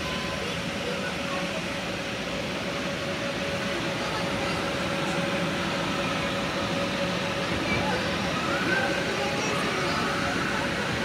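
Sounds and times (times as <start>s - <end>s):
children's voices: 7.4s - 10.6s.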